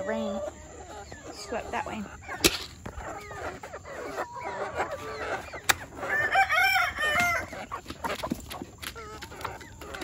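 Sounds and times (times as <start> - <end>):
hens clucking and chirping: 0.0 - 10.0
rooster crowing: 6.0 - 7.6.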